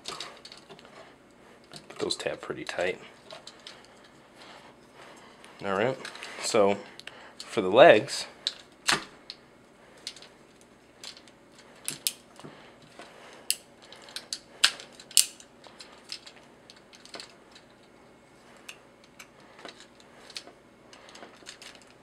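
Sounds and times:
plastic toy parts clicking: 13.5s - 17.6s.

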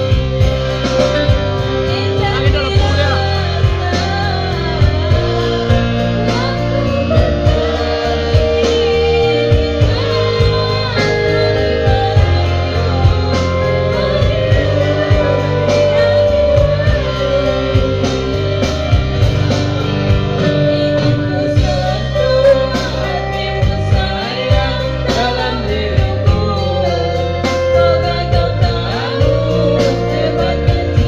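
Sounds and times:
live band playing: 0.0s - 31.0s
woman singing into a microphone: 0.0s - 31.0s.

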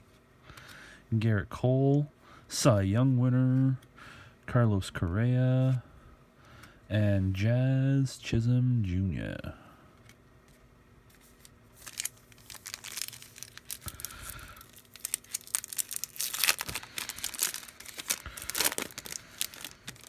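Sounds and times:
wrapper tearing and crinkling: 11.4s - 20.0s.

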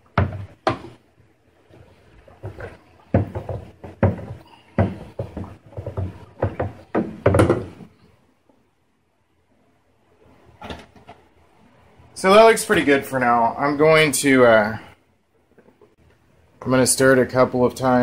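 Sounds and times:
spoon knocking on bucket wall: 0.0s - 1.0s, 2.4s - 7.9s
liquid sloshing in bucket: 0.0s - 7.9s.

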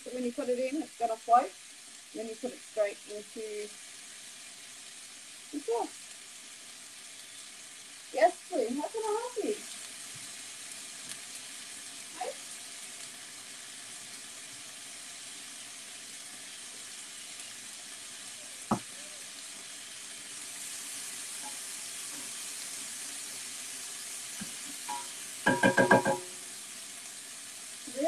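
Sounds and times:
food sizzling in a pan: 0.0s - 28.0s
sharp knock: 24.9s - 26.3s.

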